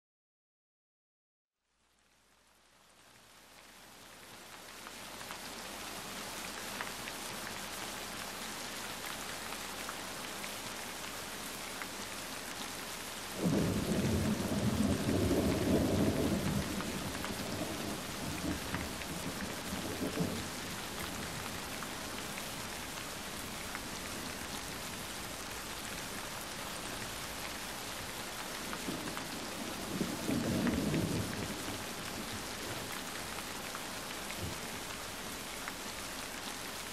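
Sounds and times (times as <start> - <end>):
steady rain falling: 1.6 - 36.9
thunder rumbling: 13.4 - 20.8.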